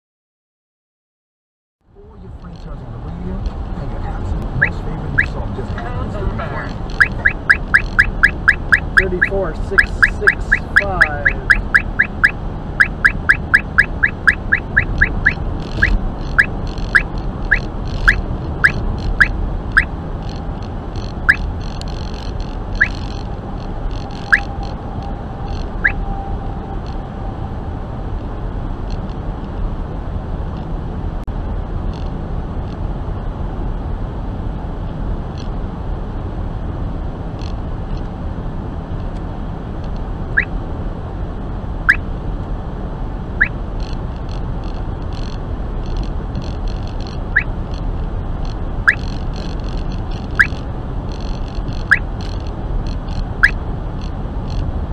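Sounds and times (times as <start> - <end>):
road and tyre noise: 1.8 - 54.9
radar detector chirping beeps: 4.6 - 5.4, 6.7 - 20.4, 21.0 - 22.2, 22.8 - 23.2, 23.9 - 26.4, 45.2 - 47.5, 48.8 - 49.6, 50.2 - 50.6, 51.2 - 52.1, 52.9 - 53.6.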